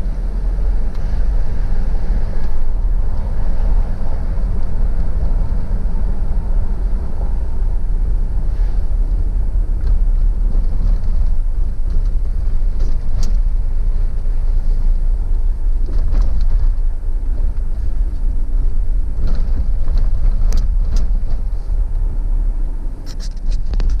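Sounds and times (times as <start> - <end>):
car cabin rumble: 0.0 - 24.0
light clicks and rattles: 19.2 - 22.0.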